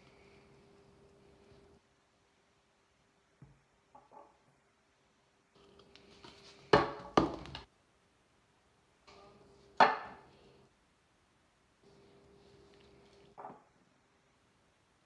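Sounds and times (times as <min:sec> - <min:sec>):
food containers knocking on counter: 0:06.7 - 0:07.7.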